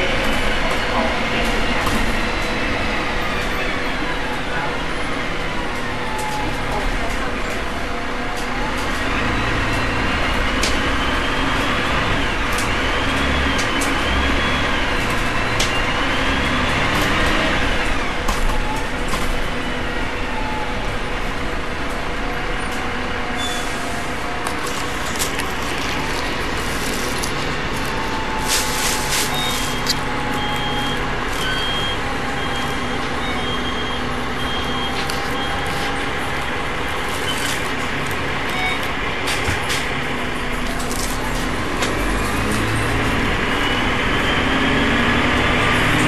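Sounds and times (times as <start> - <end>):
diesel bus engine running: 0.0 - 46.0
short beeps: 29.0 - 36.0.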